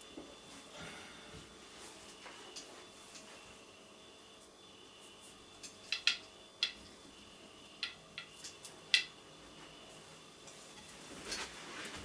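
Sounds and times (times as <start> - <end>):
soft breathy sound: 0.6 - 1.6.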